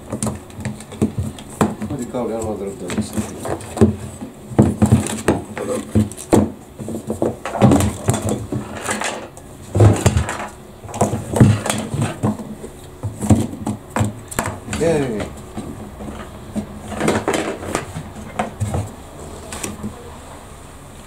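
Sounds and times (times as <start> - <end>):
plastic tank knocking and rattling: 0.0 - 19.0.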